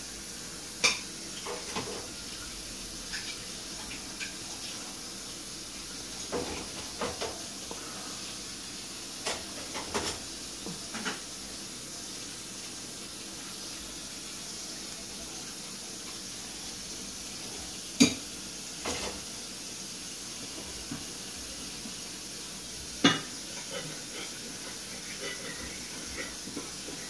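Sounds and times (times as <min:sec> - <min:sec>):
steady hiss: 0:00.0 - 0:27.0.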